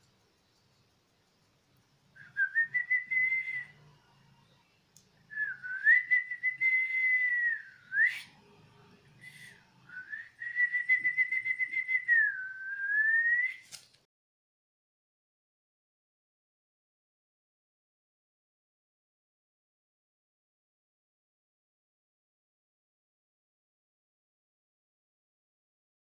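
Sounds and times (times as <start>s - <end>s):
person whistling: 2.2s - 3.7s, 5.3s - 8.4s, 9.2s - 13.7s.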